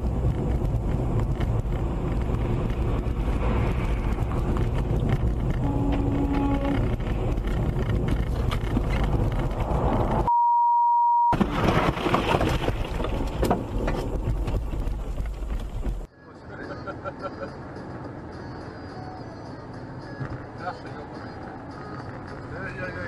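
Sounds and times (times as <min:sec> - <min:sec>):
vehicle driving rumble: 0:00.0 - 0:10.3, 0:11.4 - 0:16.1
censor bleep: 0:10.3 - 0:11.4.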